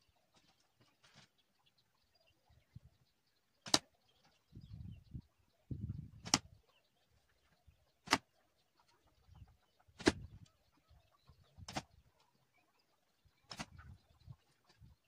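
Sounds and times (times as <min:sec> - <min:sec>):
arrows hitting cardboard target: 0:03.6 - 0:03.9, 0:06.2 - 0:06.5, 0:08.0 - 0:08.2, 0:10.0 - 0:10.3, 0:11.7 - 0:11.9, 0:13.5 - 0:13.8.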